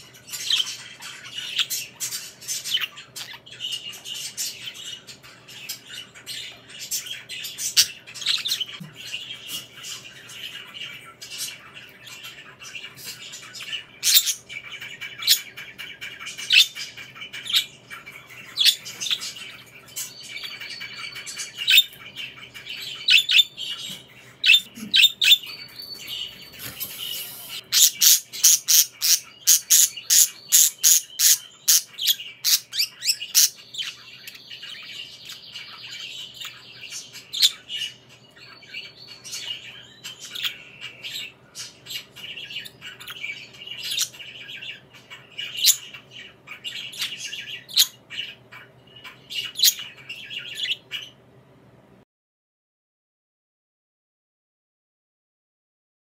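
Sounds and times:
budgerigars chirping: 0.0s - 51.2s.

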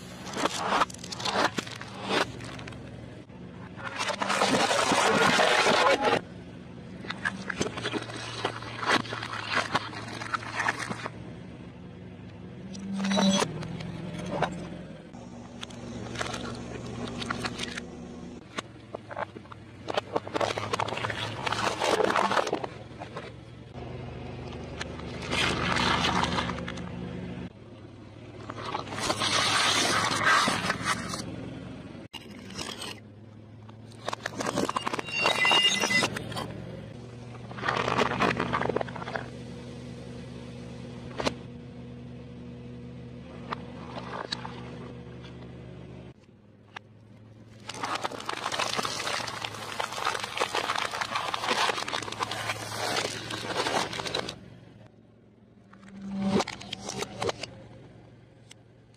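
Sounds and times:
tyre crunching plastic: 0.0s - 2.9s, 3.8s - 6.2s, 7.0s - 11.2s, 15.2s - 23.4s, 24.5s - 26.9s, 28.4s - 31.2s, 33.8s - 36.5s, 37.3s - 39.3s, 47.5s - 54.5s, 55.6s - 57.6s
engine hum: 0.0s - 58.9s.

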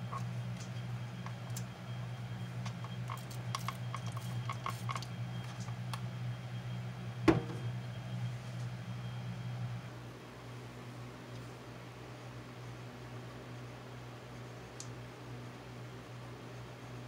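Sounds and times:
steady low hum: 0.0s - 17.0s
bottle knocking in metal sink: 7.3s - 7.6s.

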